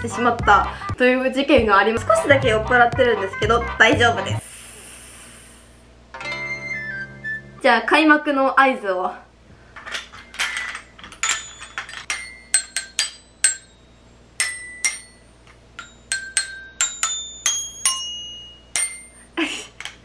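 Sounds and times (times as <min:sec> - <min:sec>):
toy glockenspiel notes: 0:06.2 - 0:07.6, 0:11.2 - 0:19.4
person laughing: 0:19.4 - 0:19.9.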